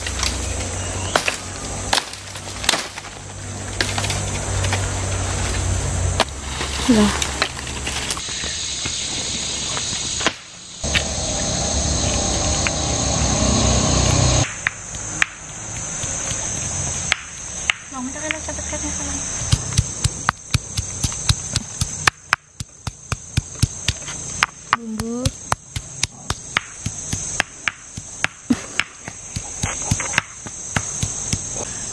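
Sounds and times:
insects chirring: 0.0 - 31.9
stone pestle pounding in mortar: 19.5 - 24.1, 24.7 - 31.6.

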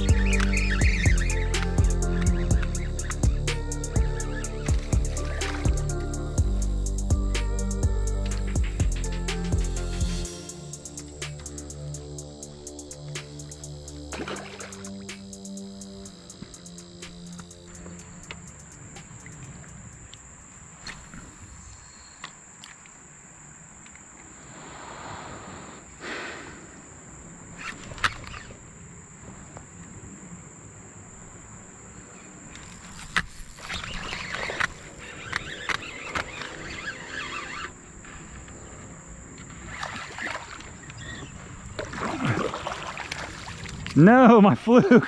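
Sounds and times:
paddle splashing in water: 14.1 - 15.0, 39.4 - 44.0.

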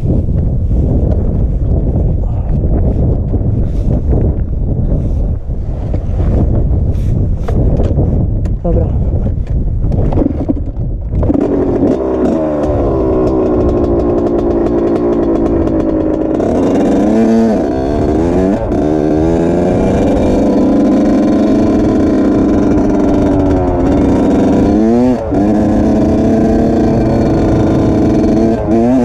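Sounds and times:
wind on microphone: 0.0 - 29.0
two-stroke engine accelerating: 10.1 - 29.0.

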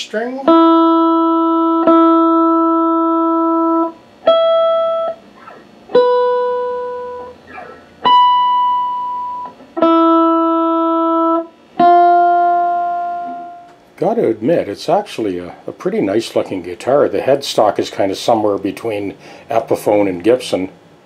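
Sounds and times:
electric guitar string plucked: 0.4 - 13.9.

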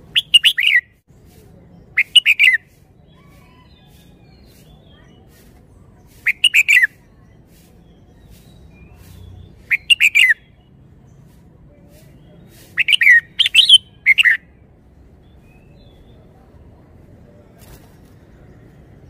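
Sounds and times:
bird warbling song: 0.0 - 0.9, 6.1 - 11.2, 12.2 - 14.4.

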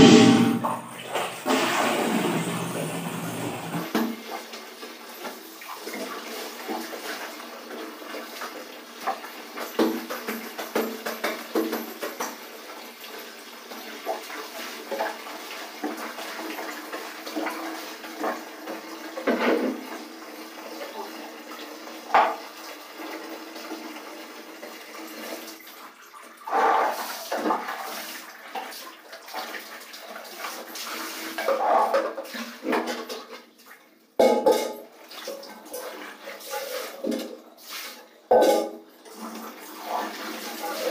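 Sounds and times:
sharp knock: 0.0 - 0.8
water splashing in buckets: 0.0 - 20.1, 24.8 - 40.9
wet cloth scrubbed and wrung: 26.4 - 32.6.

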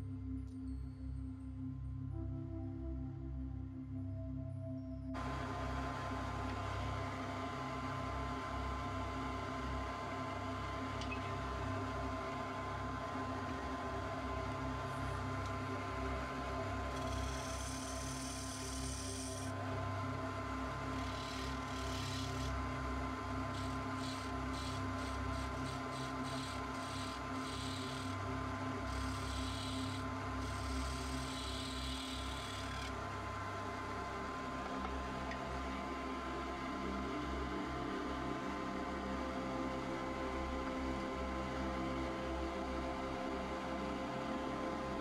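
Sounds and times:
wood lathe humming: 5.3 - 34.9.

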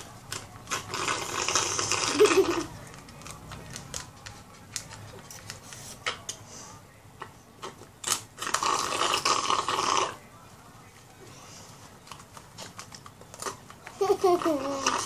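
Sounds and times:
slurping through straws: 0.7 - 2.8, 8.1 - 10.2, 14.1 - 15.0.

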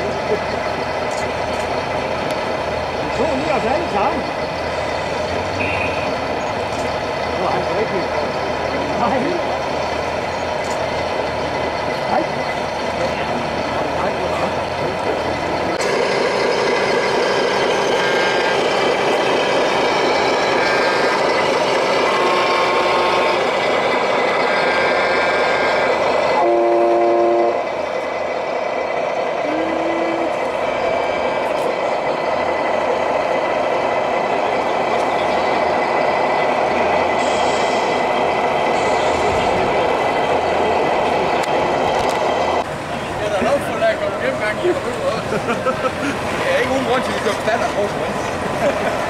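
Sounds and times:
loud vehicle noise: 0.0 - 49.0
truck horns tooting: 5.5 - 6.2, 24.8 - 27.7.

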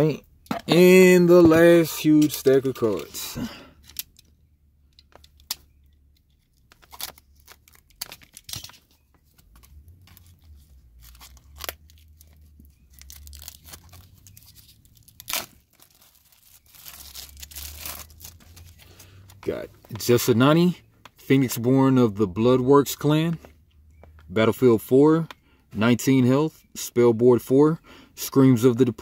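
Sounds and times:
plastic wrap tearing and crinkling: 6.6 - 8.9, 9.6 - 18.8.

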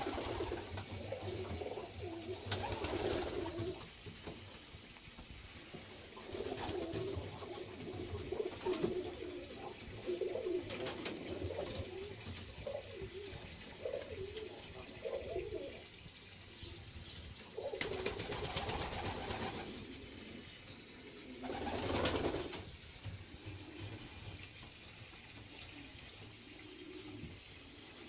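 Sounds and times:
pigeons cooing: 0.0 - 4.0, 5.9 - 28.0.

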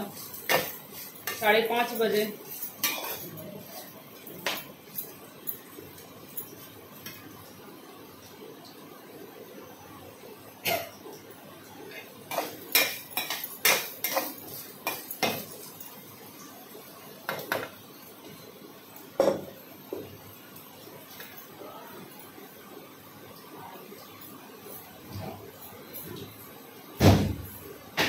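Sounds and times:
metal kitchenware clinking: 0.0 - 5.2, 12.0 - 15.9.

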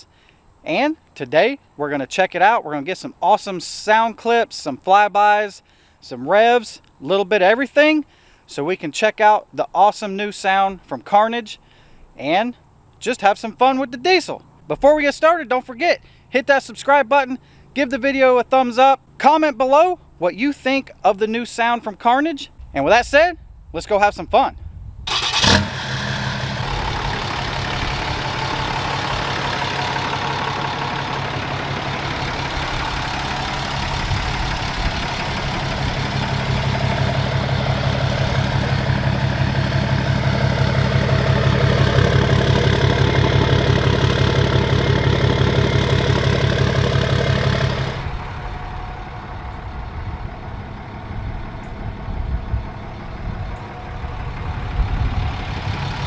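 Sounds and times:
diesel engine idling: 25.1 - 56.0.

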